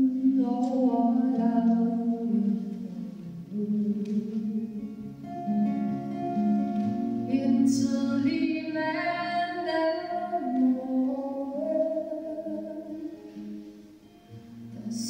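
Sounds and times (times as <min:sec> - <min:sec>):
woman singing: 0:00.0 - 0:05.3, 0:07.2 - 0:13.5, 0:14.6 - 0:15.0
acoustic guitar: 0:00.0 - 0:15.0.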